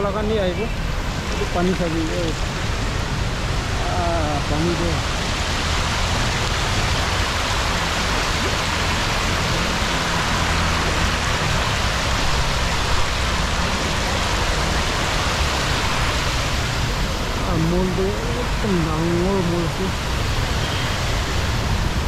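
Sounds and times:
fountain water splashing: 0.0 - 22.0.

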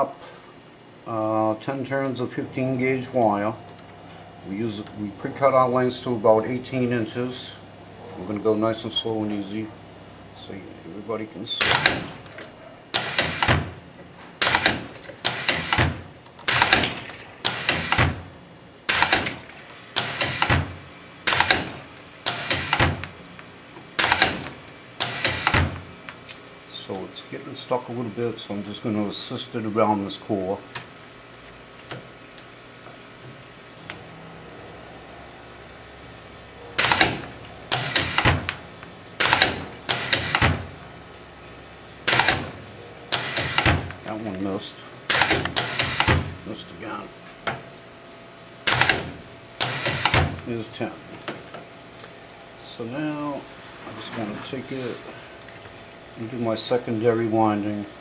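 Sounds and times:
winding machine sharp strokes: 36.8 - 38.3, 43.1 - 43.8, 49.6 - 50.2.

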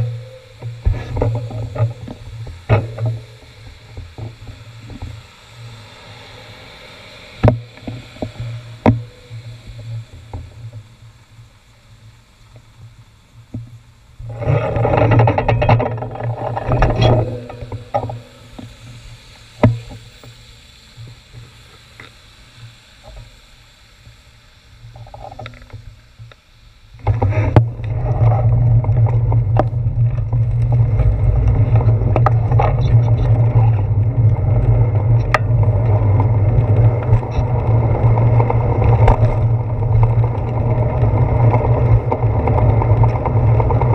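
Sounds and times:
wind noise on microphone: 27.0 - 43.9.

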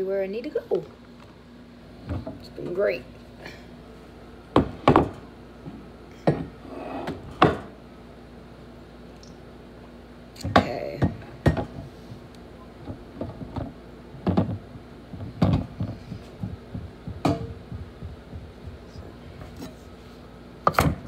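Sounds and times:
faint steady hum: 0.0 - 21.0
kitchen items knocking on wood: 13.2 - 18.9.

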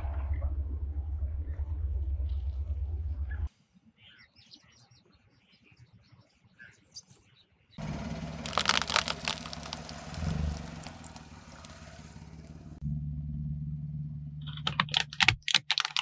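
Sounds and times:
car engine hum: 0.0 - 3.5, 7.8 - 15.4
faint bird chirps: 3.2 - 7.8
tyre crushing straw ball: 8.4 - 12.0.

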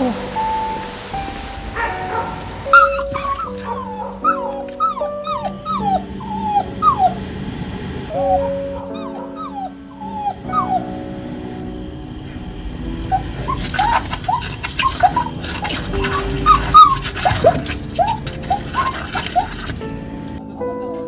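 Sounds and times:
soft background music: 0.0 - 21.0
puppy whimpering: 2.8 - 7.3, 8.1 - 10.9, 13.0 - 19.8.

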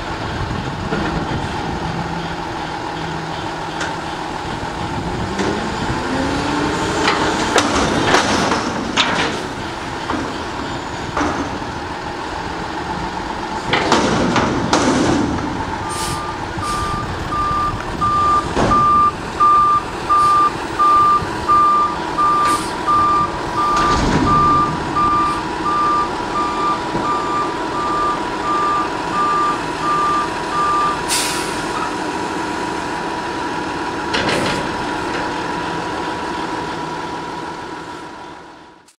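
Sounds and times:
truck engine and hydraulics: 0.0 - 38.9
dumpster clanks and bangs: 0.2 - 16.1, 18.1 - 19.2, 22.1 - 29.8, 33.9 - 36.4
reversing alarm beeps: 15.8 - 31.0.

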